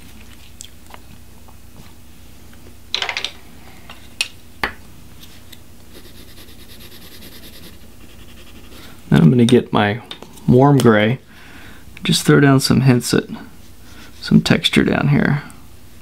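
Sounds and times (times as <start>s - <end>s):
pencil scratching on paper: 5.9s - 9.0s.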